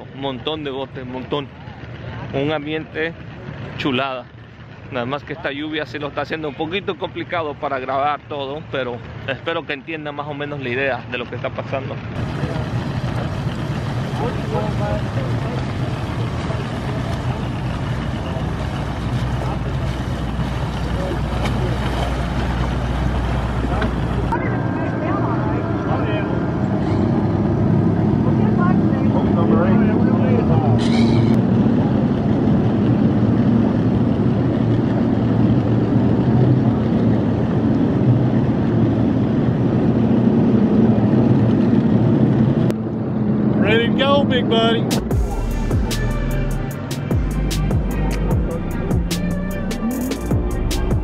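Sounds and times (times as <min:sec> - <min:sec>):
outboard motor rumbling: 0:00.0 - 0:51.0
broad rushing noise: 0:10.3 - 0:51.0.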